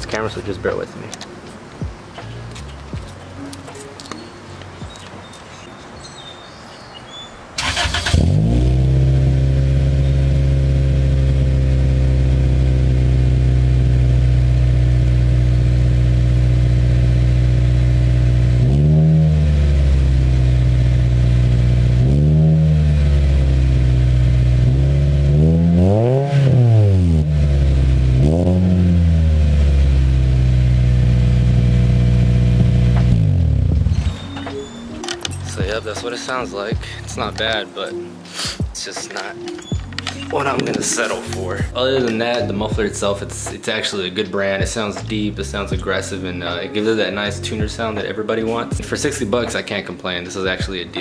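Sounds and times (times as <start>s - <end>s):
engine revving: 7.6s - 34.0s
car engine starting and idling: 7.6s - 34.5s.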